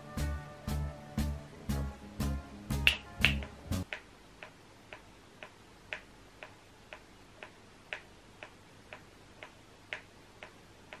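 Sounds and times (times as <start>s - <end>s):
click track ticks: 3.9s - 11.0s.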